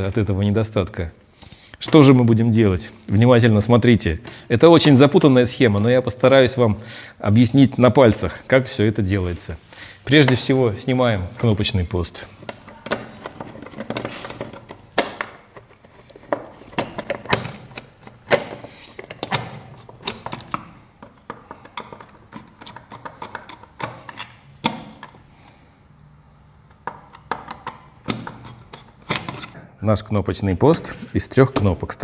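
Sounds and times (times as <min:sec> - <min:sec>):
screwdriver clicking and scraping on wood: 0:21.2 - 0:25.2.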